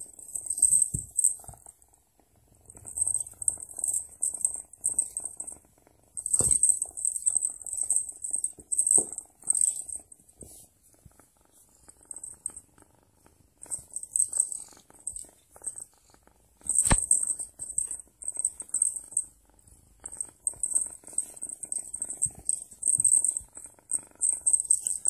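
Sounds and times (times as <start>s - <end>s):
toy jingling: 0.2s - 1.4s, 6.2s - 10.1s, 13.7s - 15.2s, 16.7s - 19.2s, 20.3s - 25.0s.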